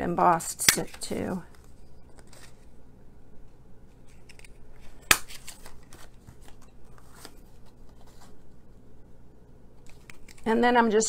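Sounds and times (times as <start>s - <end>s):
faint paper handling: 0.8s - 2.8s, 3.9s - 8.8s.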